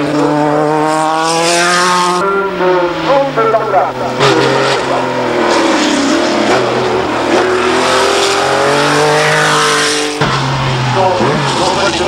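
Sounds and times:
racing car engine accelerating: 0.0 - 12.0.

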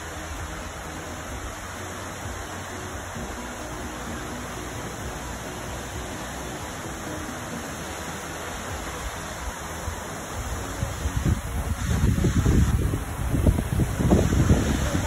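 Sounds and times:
waterfall rushing: 0.0 - 15.0
wind buffeting microphone: 10.6 - 15.0.

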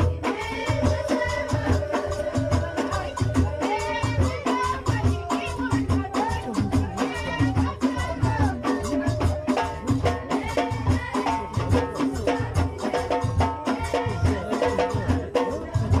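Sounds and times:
frame drum beat: 0.0 - 16.0.

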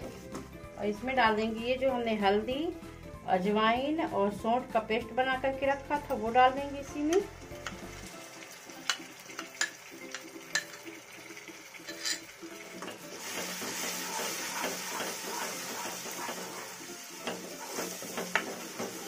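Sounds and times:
paste sizzling in pan: 7.2 - 19.0
spatula scraping pan: 11.9 - 12.3, 13.2 - 19.0
wooden spatula knocking on pan: 17.2 - 19.0.

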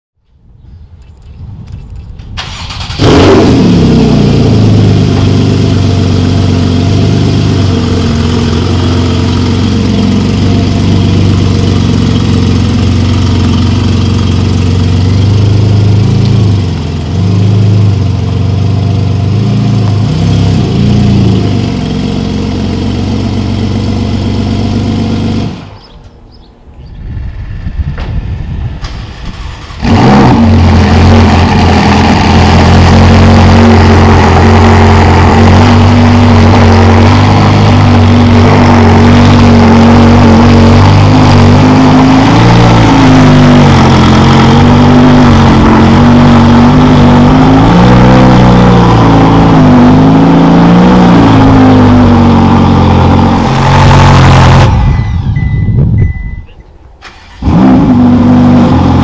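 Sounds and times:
car engine idling: 2.4 - 25.9.

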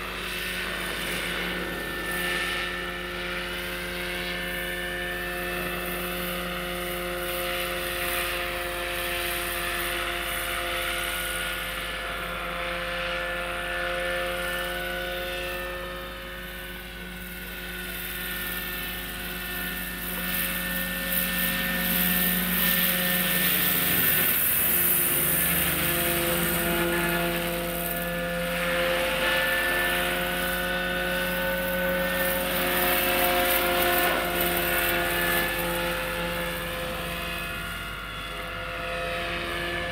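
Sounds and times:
model helicopter motor whine: 0.0 - 39.9
rotor blades rushing: 0.0 - 39.9.

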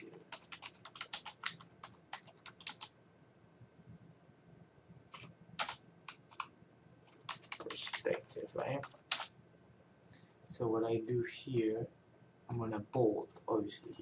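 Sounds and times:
typing on computer keyboard: 0.0 - 2.9, 5.1 - 6.5, 7.1 - 8.1, 8.8 - 9.3.

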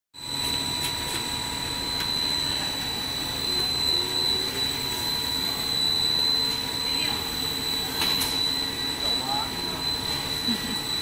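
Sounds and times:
high machine whine: 0.2 - 11.0.

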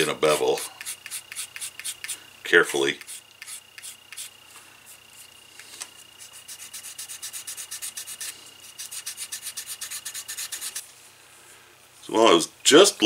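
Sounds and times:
sandpaper rubbing leather: 0.0 - 2.2, 3.0 - 4.3, 6.2 - 10.8.

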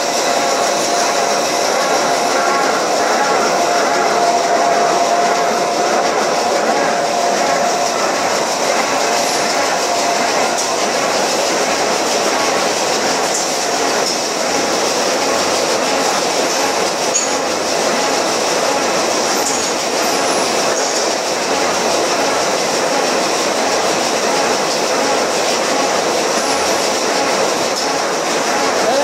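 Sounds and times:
industrial machine rumbling: 0.0 - 29.0
high machine squeaks: 17.1 - 17.5, 19.3 - 21.1.

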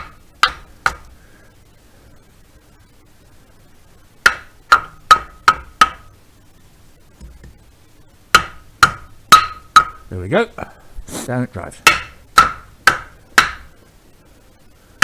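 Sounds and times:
sharp knocks on metal cylinder: 4.2 - 6.1, 8.3 - 10.0, 11.8 - 13.7.

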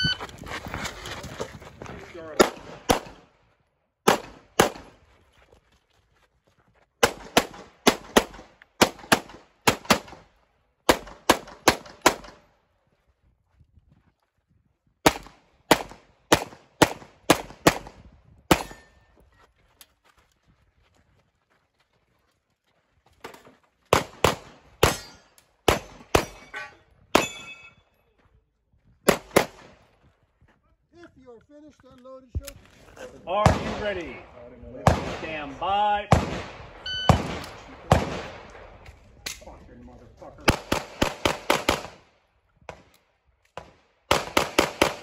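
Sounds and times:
pistol shots: 2.4 - 3.3, 4.0 - 4.9, 7.0 - 12.5, 15.0 - 18.9, 23.9 - 26.5, 29.1 - 29.8, 33.4 - 39.4, 40.4 - 42.1, 43.6 - 45.0
steel targets ringing: 24.9 - 27.9.

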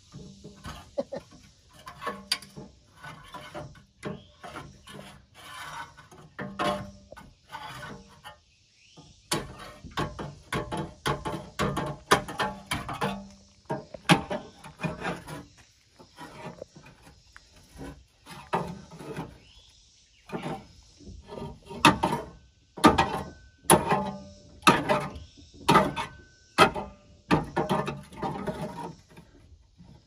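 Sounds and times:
metal creaking squeaks: 9.4 - 19.6.

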